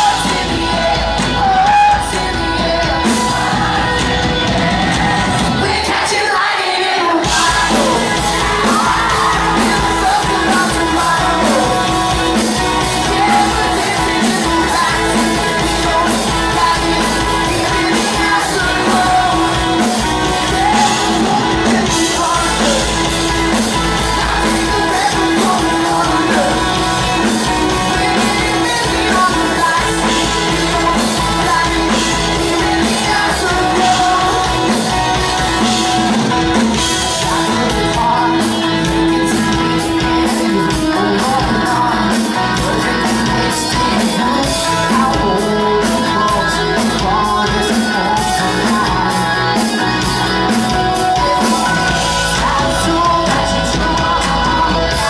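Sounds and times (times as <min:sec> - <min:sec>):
bass guitar: 0:00.0 - 0:06.2, 0:07.2 - 0:55.0
drums: 0:00.0 - 0:55.0
electric guitars: 0:00.0 - 0:55.0
male singer: 0:00.0 - 0:55.0.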